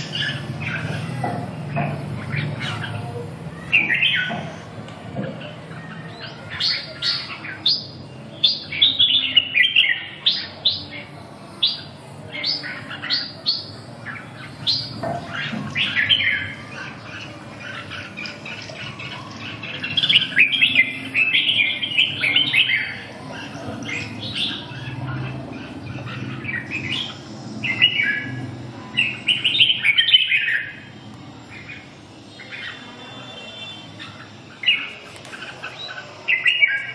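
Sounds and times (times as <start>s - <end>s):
bird chattering song: 0.0s - 36.9s.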